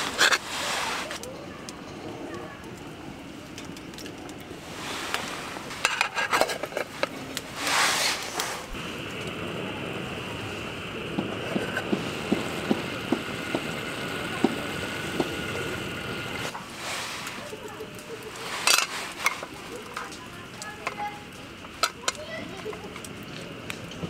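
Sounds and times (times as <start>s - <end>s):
stove hissing: 0.0s - 24.0s
light ticks of heating pots: 1.1s - 4.5s, 11.0s - 24.0s.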